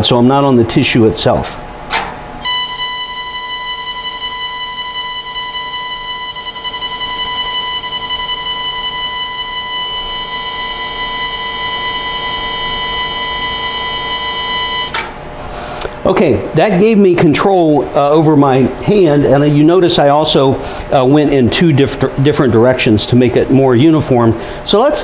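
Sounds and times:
steady electronic beep: 0:02.4 - 0:15.0.

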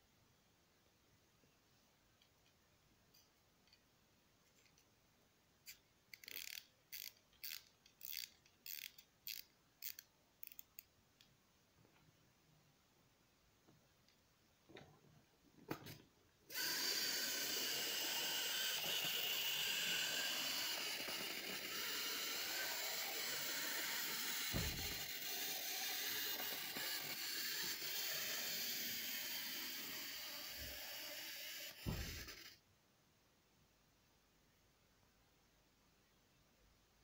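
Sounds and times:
clockwork spring motor whirring: 0:06.2 - 0:10.8, 0:16.5 - 0:32.6
low thump: 0:24.5 - 0:25.0, 0:31.8 - 0:32.3.

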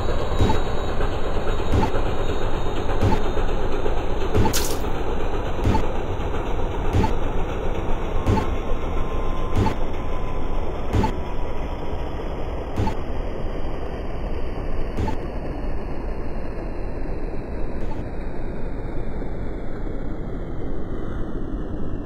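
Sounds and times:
sharp clicks or knocks: 0:04.4 - 0:04.9.

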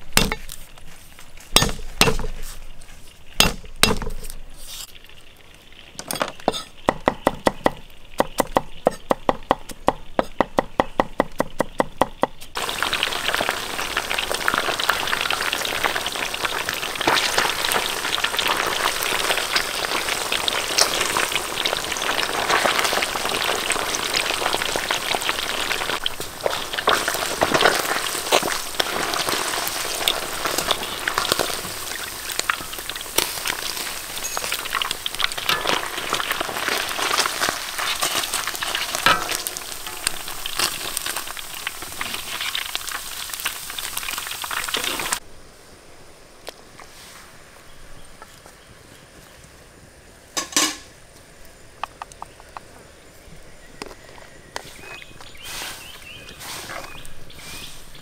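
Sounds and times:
food frying in hot oil: 0:12.5 - 0:45.2.

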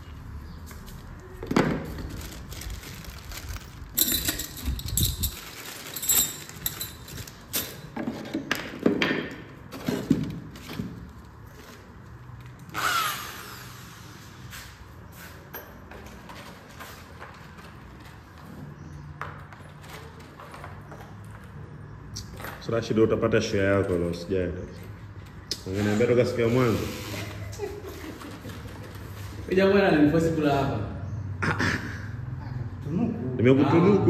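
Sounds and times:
hand tools clattering: 0:03.9 - 0:08.6.

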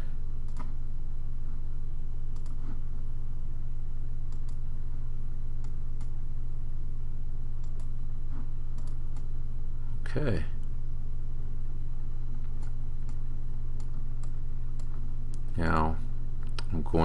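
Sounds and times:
low electrical hum: 0:00.0 - 0:17.0
computer mouse clicks: 0:00.4 - 0:00.8, 0:02.3 - 0:02.7, 0:04.3 - 0:04.6, 0:05.6 - 0:06.2, 0:07.6 - 0:08.0, 0:08.7 - 0:09.3, 0:13.8 - 0:15.5.

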